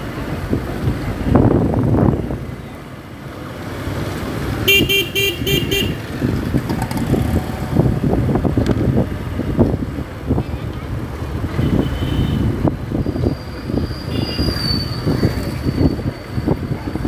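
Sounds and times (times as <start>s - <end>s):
low rumble of traffic: 0.0s - 17.0s
vehicle horn honking: 4.7s - 6.0s, 11.6s - 12.5s.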